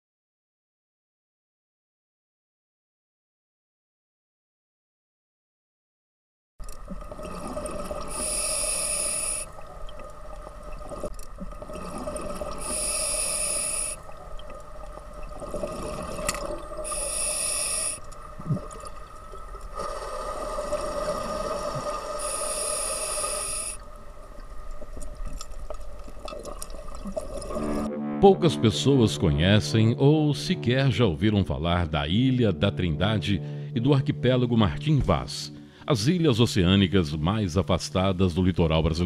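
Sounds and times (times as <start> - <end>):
underwater hum: 6.6 - 28.2
scuba regulator breaths: 8.1 - 9.6, 12.6 - 14.1, 16.8 - 18.1, 19.7 - 23.9.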